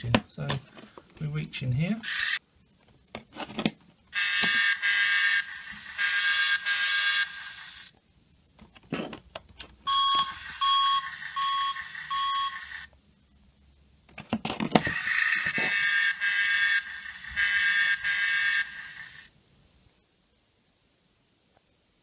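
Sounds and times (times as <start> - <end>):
toy electronic alarm beeps: 9.9 - 12.9.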